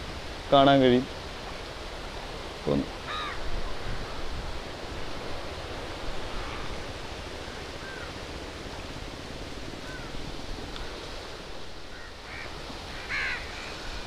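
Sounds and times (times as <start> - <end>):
wind noise on microphone: 0.0 - 14.0.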